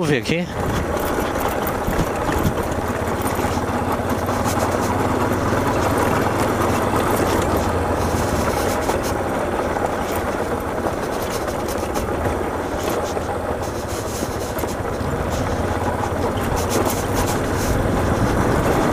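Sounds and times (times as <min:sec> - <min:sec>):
motorcycle engine running: 0:00.0 - 0:18.9
loose stones rattling: 0:00.6 - 0:18.9.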